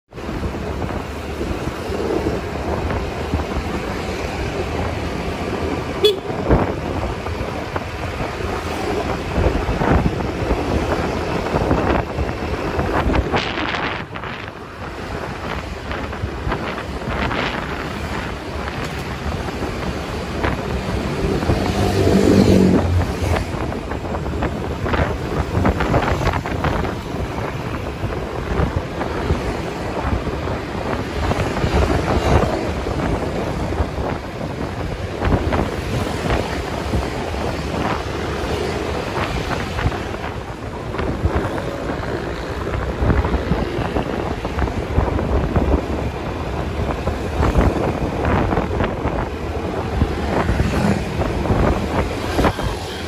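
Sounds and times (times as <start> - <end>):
motorcycle engine and road noise: 0.1 - 53.0
vehicles passing: 0.1 - 53.0
vehicle horn honking: 6.0 - 6.5.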